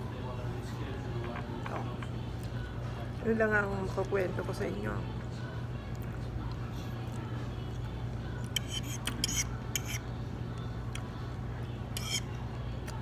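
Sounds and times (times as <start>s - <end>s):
low background hum: 0.0s - 13.0s
fork scraping ceramic plate: 8.4s - 10.1s, 11.9s - 12.4s.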